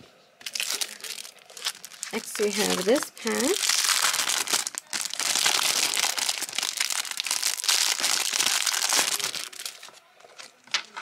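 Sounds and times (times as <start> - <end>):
plastic packaging crinkling: 0.4 - 11.0.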